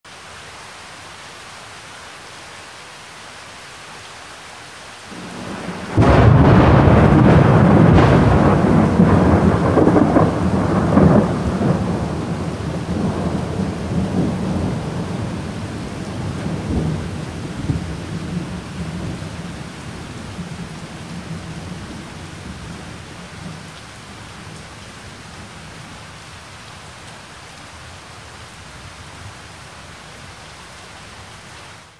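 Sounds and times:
steady rain: 0.0s - 31.9s
thunder rumble and boom: 5.1s - 15.4s.

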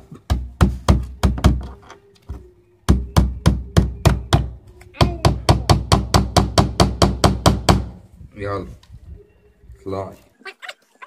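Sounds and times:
hammer striking nails into wood: 2.9s - 8.0s.

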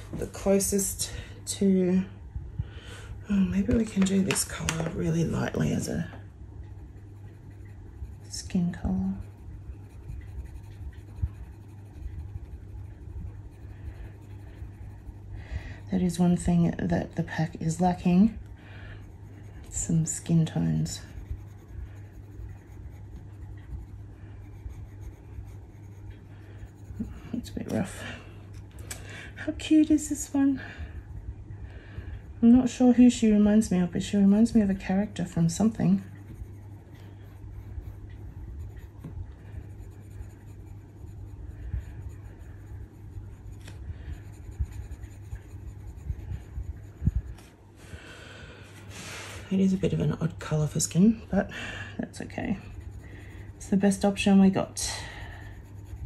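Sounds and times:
steady low hum: 0.0s - 56.0s
pencil scratching on paper: 6.8s - 18.1s, 19.0s - 27.9s, 33.4s - 47.4s, 52.2s - 54.4s, 55.4s - 56.0s.

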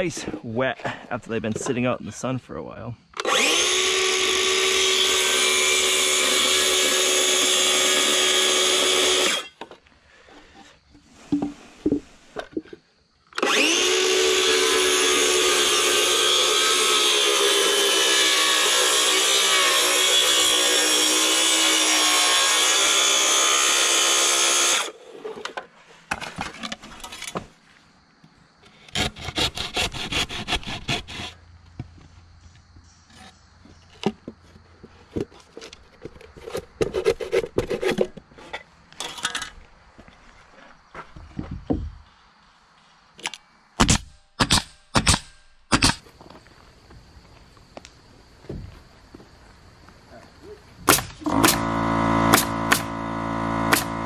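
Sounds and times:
circular saw cutting wood: 3.2s - 9.6s, 13.4s - 25.0s, 28.9s - 31.4s, 51.2s - 54.0s
handsaw rasping: 4.2s - 9.5s, 29.0s - 31.4s.

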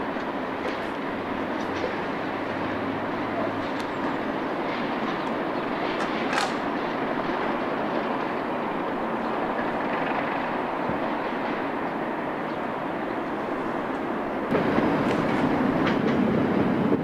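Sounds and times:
train rumbling on track: 0.0s - 17.0s.

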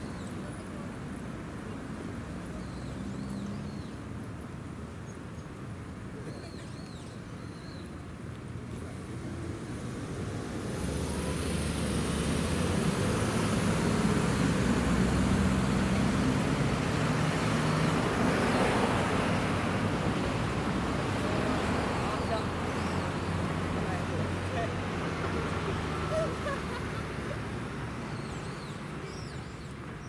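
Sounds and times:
tyre and road noise: 0.0s - 30.0s.

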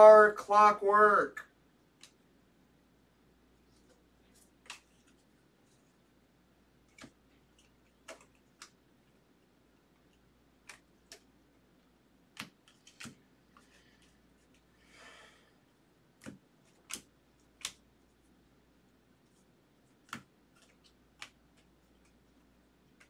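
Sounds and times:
cards rustling: 3.6s - 6.0s
cards clicking on a stack: 4.4s - 5.2s, 6.8s - 8.8s, 10.6s - 11.3s, 12.3s - 13.7s, 16.2s - 17.8s, 19.9s - 22.2s.

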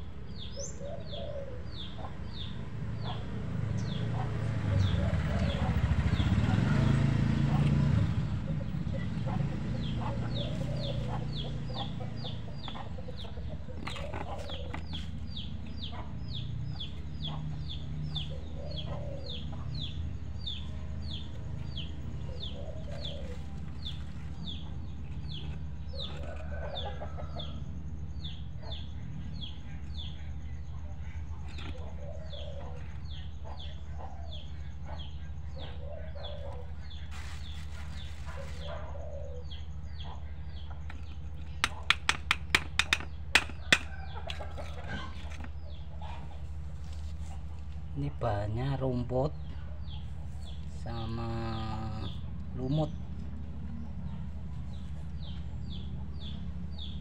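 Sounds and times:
small bird chirping: 7.6s - 57.0s
chickens clucking: 8.5s - 19.9s, 29.4s - 47.8s.

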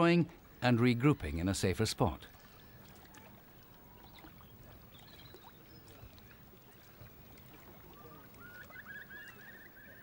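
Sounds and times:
gently moving sea water: 0.0s - 10.0s
bird chirping: 3.4s - 6.9s.

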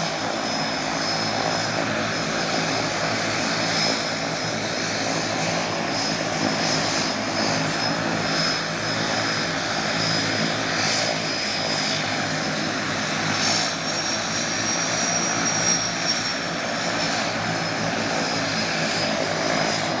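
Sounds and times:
turboprop engines idling: 0.0s - 20.0s.

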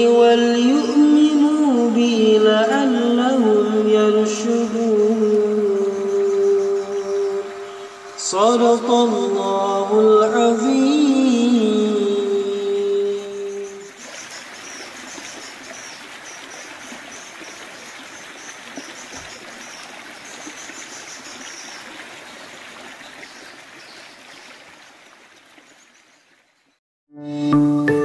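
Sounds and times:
stream cascading over rocks: 5.2s - 26.5s.

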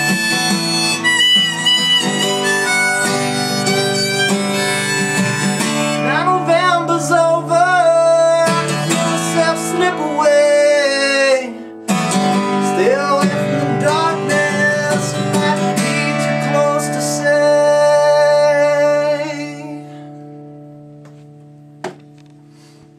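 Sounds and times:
harmonica with bending notes: 0.0s - 6.4s
acoustic guitar strumming: 0.0s - 22.9s.

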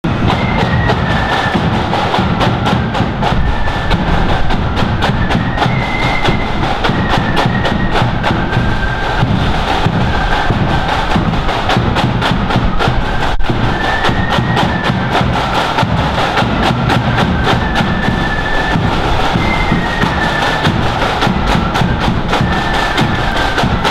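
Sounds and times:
bass drum beats: 0.0s - 13.8s
flutes playing tune: 0.0s - 23.9s
snare drum beats: 0.0s - 23.9s.

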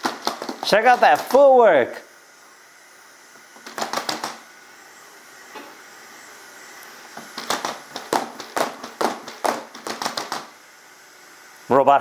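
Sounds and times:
robot feet tapping on hardwood floor: 0.0s - 0.7s, 3.6s - 4.4s, 7.2s - 10.5s
faint steady hiss: 0.0s - 12.0s.

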